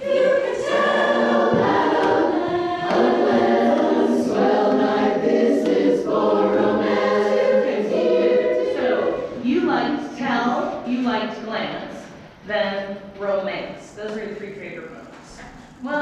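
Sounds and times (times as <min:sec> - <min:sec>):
a cappella chorus singing: 0:00.0 - 0:10.1.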